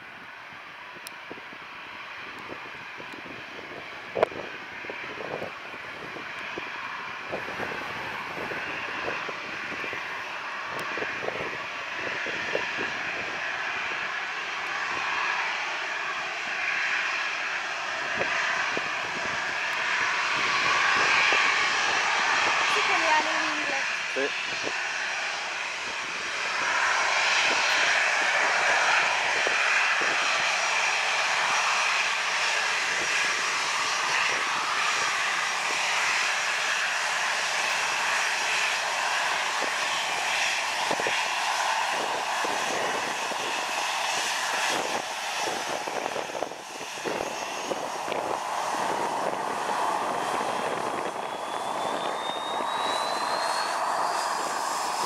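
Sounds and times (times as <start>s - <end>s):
jet engines rushing whine: 0.0s - 55.0s
high whine rising in pitch: 46.5s - 55.0s.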